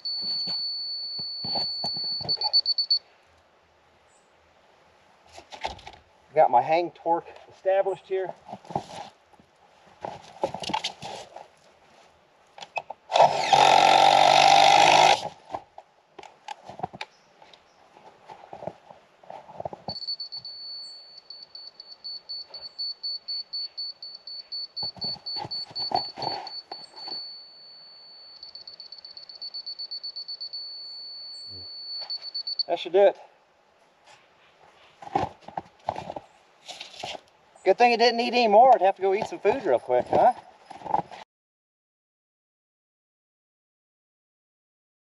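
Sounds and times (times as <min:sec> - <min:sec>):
electronic tone and beeps: 0:00.0 - 0:03.0, 0:19.9 - 0:32.7
power drill running: 0:13.1 - 0:15.3
handling knocks and clicks: 0:24.8 - 0:27.2.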